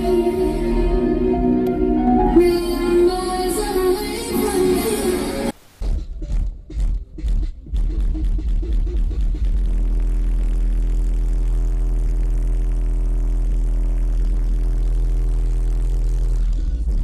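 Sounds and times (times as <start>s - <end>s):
steady low bass tone: 0.0s - 4.8s, 7.7s - 17.0s
loud car audio music: 0.0s - 17.0s.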